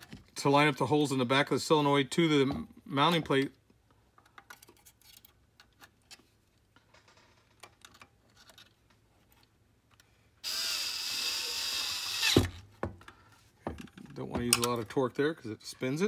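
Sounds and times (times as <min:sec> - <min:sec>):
cordless drill running: 0:10.4 - 0:12.6.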